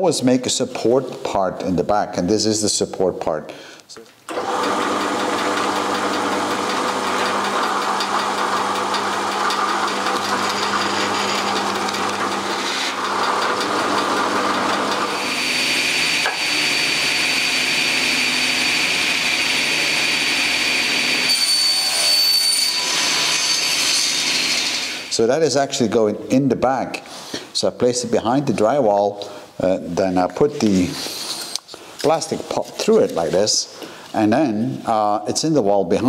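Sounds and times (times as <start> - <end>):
drill press boring wood: 4.3 - 25.1
table saw whining: 4.3 - 25.2.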